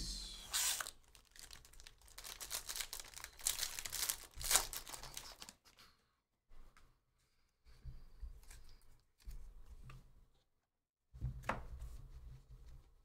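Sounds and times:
foil wrapper tearing and crinkling: 0.5s - 5.6s.

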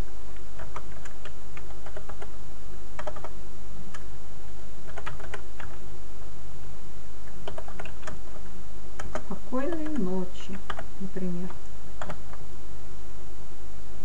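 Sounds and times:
low electrical hum: 0.0s - 14.0s
keyboard typing: 0.3s - 2.4s, 3.0s - 4.1s, 4.8s - 5.8s, 7.3s - 12.4s.

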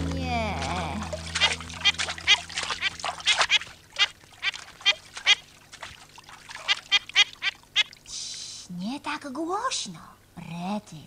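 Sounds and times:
cartoon duckling quacking: 0.2s - 5.4s, 6.7s - 7.9s.

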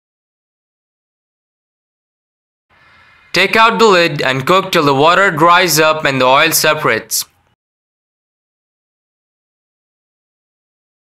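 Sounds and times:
man narrating: 3.3s - 7.3s.

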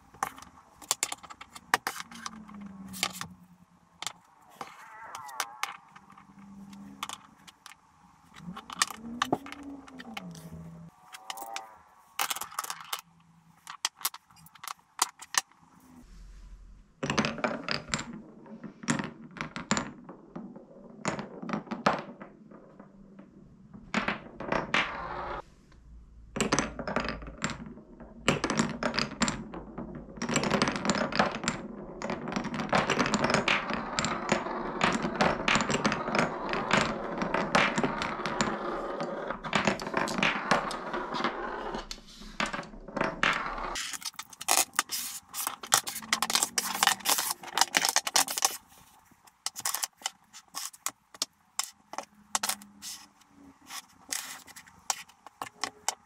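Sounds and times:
glass marbles rolling in wooden run: 0.0s - 15.6s, 17.0s - 25.4s, 26.4s - 56.0s
wooden blocks knocking on table: 0.1s - 3.3s, 17.0s - 25.2s, 26.4s - 48.6s, 49.3s - 53.0s.

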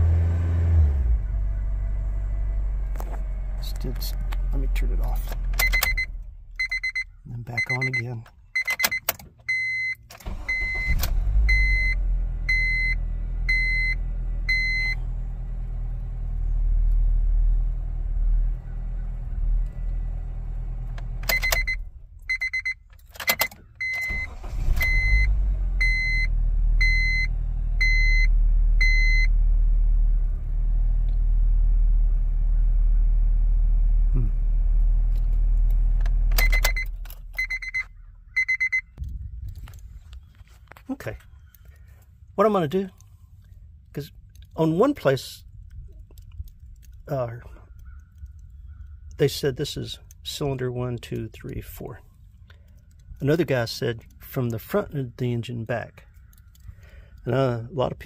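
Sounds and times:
car engine starting and idling: 0.0s - 58.0s
ignition key clicks: 5.2s - 11.7s, 20.9s - 25.2s, 35.1s - 40.3s, 56.1s - 57.2s
dashboard warning chime beeping: 5.6s - 15.0s, 21.2s - 29.3s, 36.3s - 39.0s.

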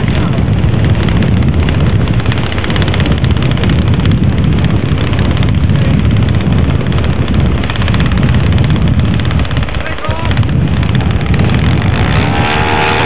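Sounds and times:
model aircraft engine running: 0.0s - 13.0s.

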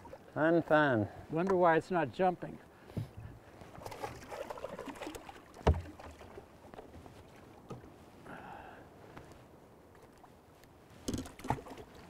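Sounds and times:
water sloshing: 0.0s - 1.6s, 3.0s - 8.1s, 9.9s - 12.0s.

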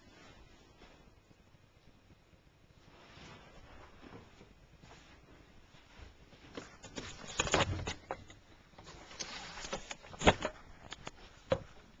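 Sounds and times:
rustling: 0.0s - 12.0s
small knocks and scrapes: 6.4s - 11.8s.

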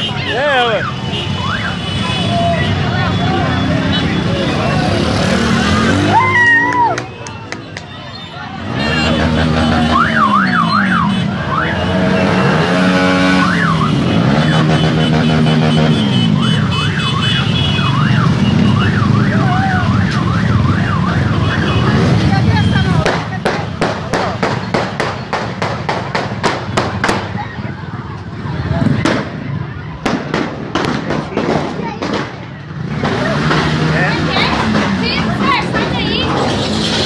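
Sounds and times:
crowd noise: 0.0s - 37.0s
motorcycle engines: 0.0s - 37.0s
warbling electronic sirens: 9.6s - 14.7s, 16.3s - 22.2s.

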